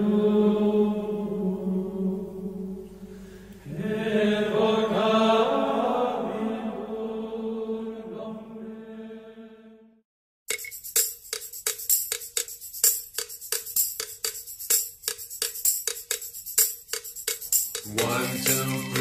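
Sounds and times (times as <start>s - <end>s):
chanted singing: 0.0s - 2.9s, 3.6s - 9.8s, 17.9s - 19.0s
percussion-led music: 10.5s - 19.0s.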